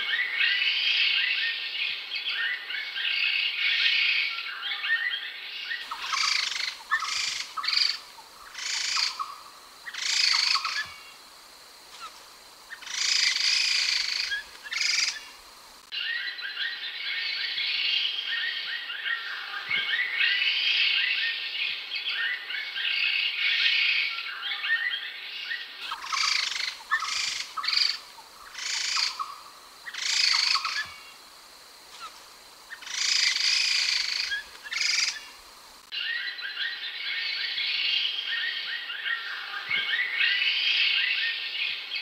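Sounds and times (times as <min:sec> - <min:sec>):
loud harsh bird calls: 0:05.8 - 0:11.1, 0:12.7 - 0:15.3, 0:25.8 - 0:31.2, 0:32.7 - 0:35.3
laughingthrushes chattering: 0:05.8 - 0:11.2, 0:12.0 - 0:15.4, 0:25.8 - 0:31.2, 0:31.9 - 0:35.4.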